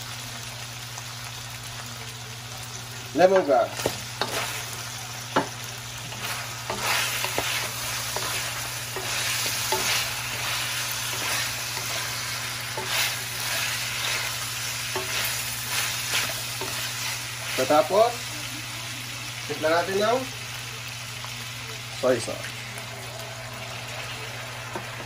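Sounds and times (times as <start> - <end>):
meat sizzling in hot oil: 0.0 - 25.0
spatula scraping wok: 3.4 - 18.3.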